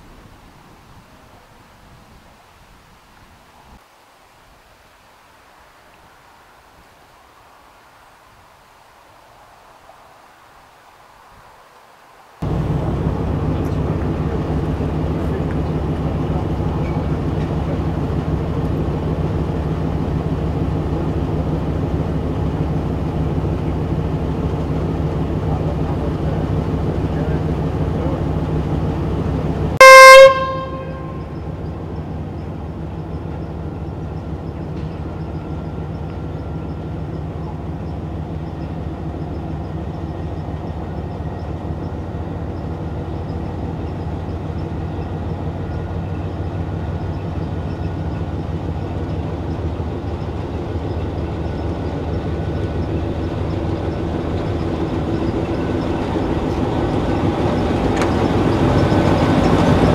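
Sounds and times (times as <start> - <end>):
diesel engine running: 12.4 - 59.9
locomotive horn blast: 29.8 - 31.6.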